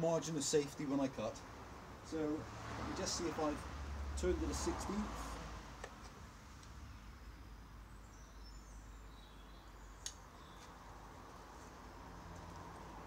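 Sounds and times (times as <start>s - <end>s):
small sharp clicks: 10.0s - 10.8s.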